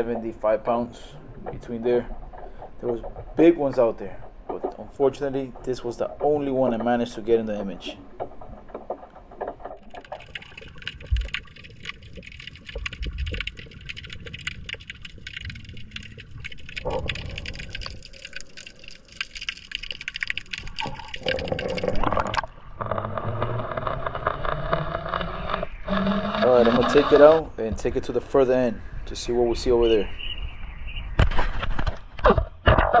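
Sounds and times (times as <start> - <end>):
low water rumble: 0.0 - 28.7
underwater crackle of clicks: 7.8 - 27.4.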